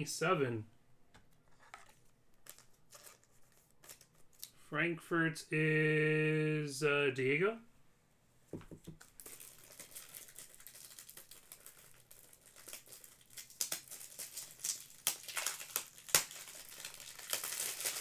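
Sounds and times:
packaging crinkling and rustling: 1.4 - 4.5, 8.9 - 18.0.

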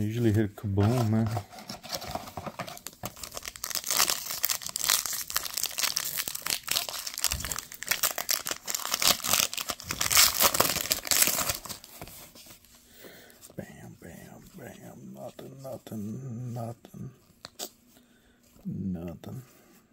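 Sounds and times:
foil wrapper crinkling and tearing: 1.7 - 12.3.

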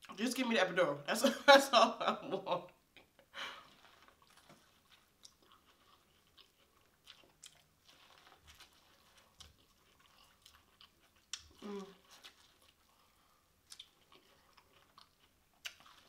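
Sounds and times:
person chewing corn on the cob: 3.0 - 16.0.

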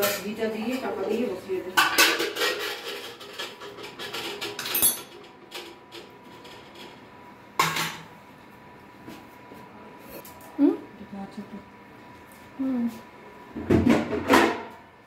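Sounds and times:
metal utensils clinking on a pot: 0.0 - 0.9, 1.8 - 5.2.

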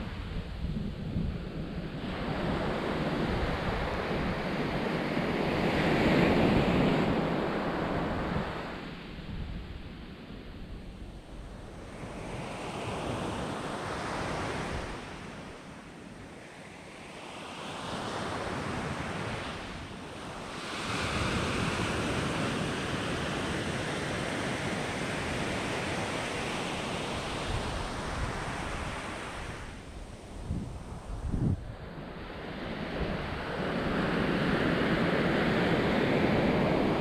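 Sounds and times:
waves washing up shore: 17.0 - 37.0.

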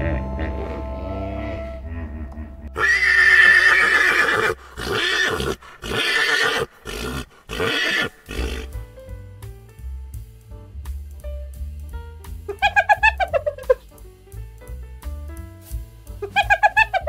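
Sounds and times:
horse neighing: 1.9 - 8.7.

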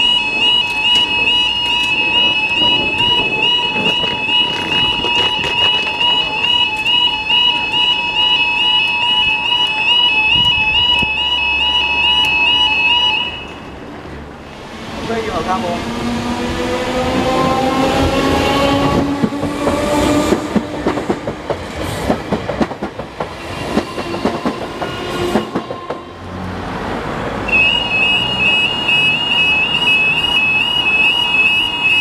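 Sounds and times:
warbling crossing alarm: 0.0 - 13.7, 27.5 - 32.0
train wheels clattering over joints: 17.4 - 26.0.

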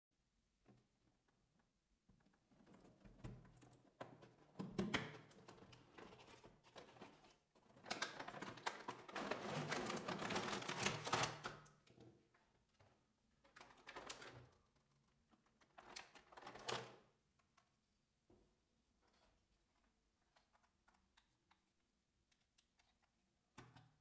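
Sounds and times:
packaging crinkling and rustling: 7.8 - 11.5.

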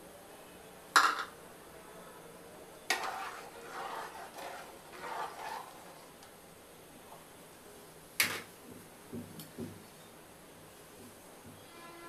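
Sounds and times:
liquid sloshing while stirred: 2.9 - 6.1.

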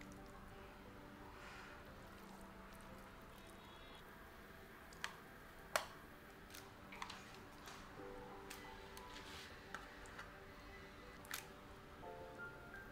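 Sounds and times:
soft squishes of food: 1.9 - 4.0.

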